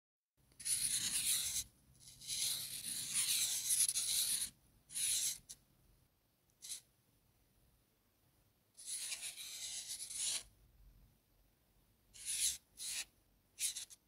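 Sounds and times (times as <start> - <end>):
marker pen scratching paper: 0.6 - 5.6, 6.6 - 6.9, 8.8 - 10.5, 12.1 - 14.0.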